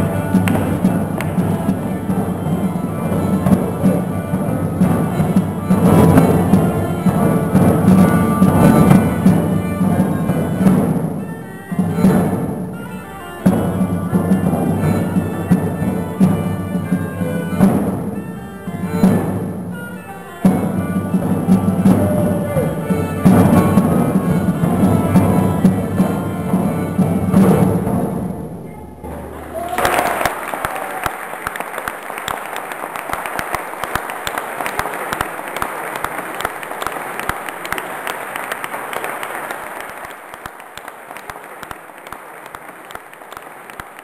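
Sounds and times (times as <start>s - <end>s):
audience applauding: 0.0s - 11.0s, 21.5s - 23.4s, 29.2s - 44.0s
fiddle and lutes playing: 0.0s - 29.7s, 31.3s - 44.0s.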